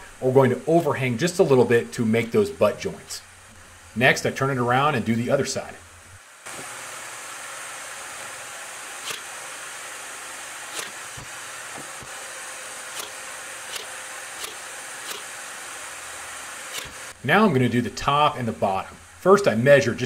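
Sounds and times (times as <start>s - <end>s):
steady hiss: 0.0s - 20.0s
nail gun clicks: 9.0s - 9.3s, 10.7s - 11.3s, 12.9s - 15.3s, 16.7s - 17.0s.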